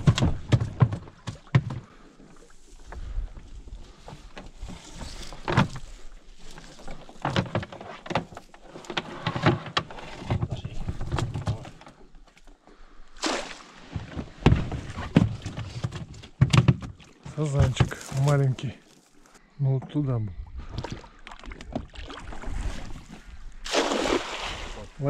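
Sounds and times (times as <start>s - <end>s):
knocks and thumps in boat: 0.0s - 2.0s, 2.8s - 12.1s, 13.8s - 18.4s
water splash: 13.2s - 14.0s, 20.8s - 25.0s.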